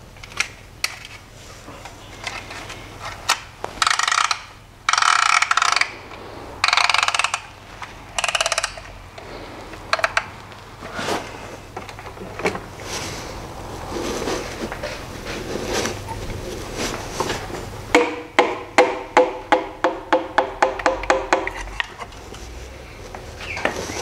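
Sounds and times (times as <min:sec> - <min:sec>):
sharp metal clicks: 0:03.3 - 0:07.5, 0:08.1 - 0:09.0, 0:09.8 - 0:10.3
ratchet clicking rapidly: 0:03.8 - 0:06.0, 0:06.6 - 0:07.5, 0:08.1 - 0:09.0.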